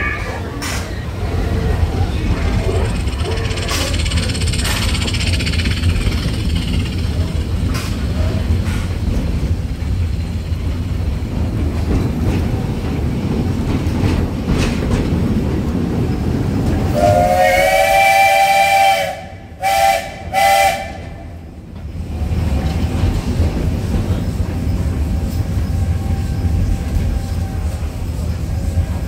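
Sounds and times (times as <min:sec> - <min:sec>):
train car rumble and wheel clicks: 0:00.0 - 0:29.0
steam locomotive chime whistle: 0:16.9 - 0:21.4.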